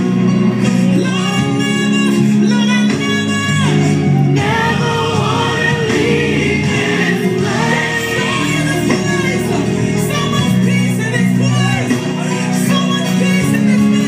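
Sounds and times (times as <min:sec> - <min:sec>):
held instrumental backing: 0:00.0 - 0:14.0
group singing gospel: 0:03.7 - 0:11.5.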